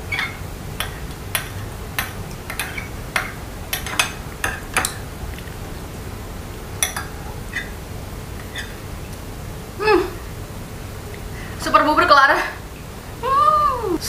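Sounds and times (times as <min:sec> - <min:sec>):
metal spoon scraping glass bowl: 0:00.0 - 0:01.6, 0:02.5 - 0:04.1, 0:08.4 - 0:08.8.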